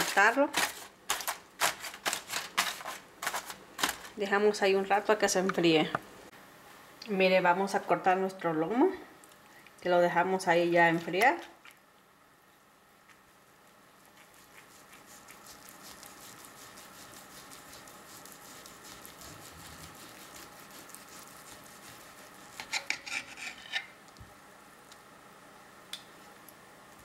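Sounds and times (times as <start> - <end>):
knife sawing through meat: 14.3 - 23.7.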